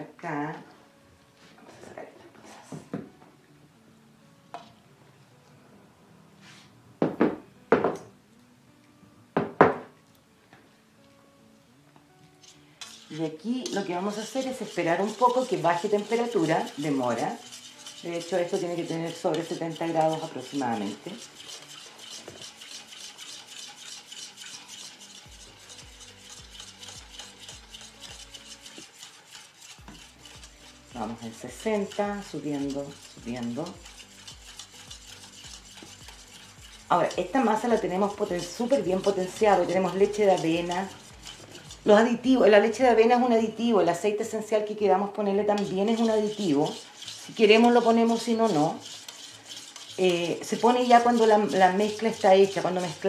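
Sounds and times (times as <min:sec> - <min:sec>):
glass jars knocking on wooden counter: 0:07.0 - 0:08.0, 0:09.4 - 0:09.9
metal utensil scraping steel bowl: 0:12.4 - 0:53.0.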